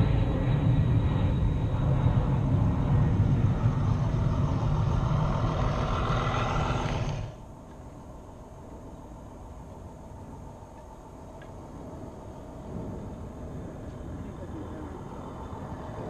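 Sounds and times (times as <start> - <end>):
model railcar rumbling on track: 5.0 - 7.4.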